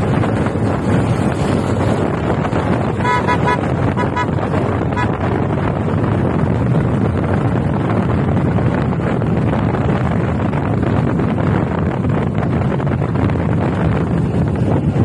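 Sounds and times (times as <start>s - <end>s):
motorcycle engine and road noise: 0.0s - 15.0s
wind buffeting microphone: 0.0s - 15.0s
horn beeps: 3.0s - 5.3s.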